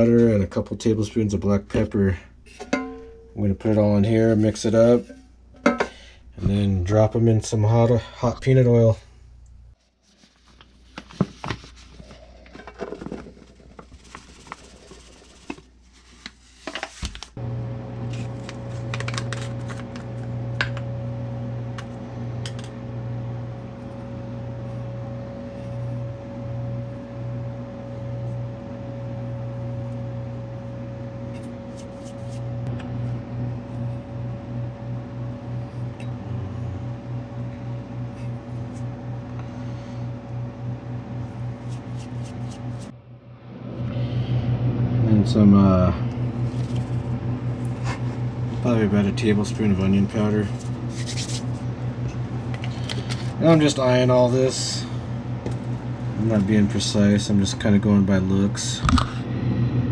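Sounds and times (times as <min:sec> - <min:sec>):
steady machine hum: 0:00.0 - 0:09.8, 0:16.6 - 0:59.9
containers clicking and rustling: 0:18.1 - 0:20.8.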